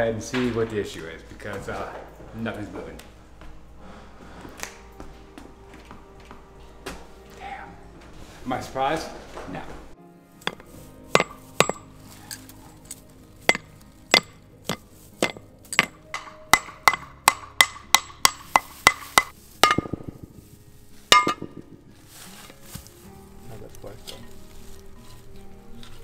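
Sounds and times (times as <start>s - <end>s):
hammer striking metal: 10.4s - 11.9s, 13.4s - 20.4s, 21.1s - 21.8s.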